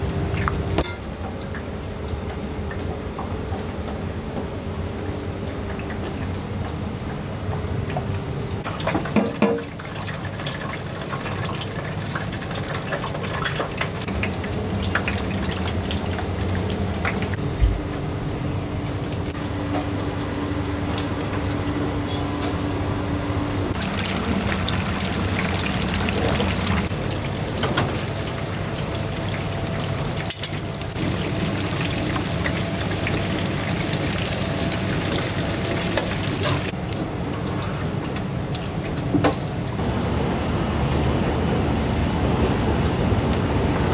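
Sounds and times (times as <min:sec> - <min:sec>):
water running and pouring: 0:23.7 - 0:36.8.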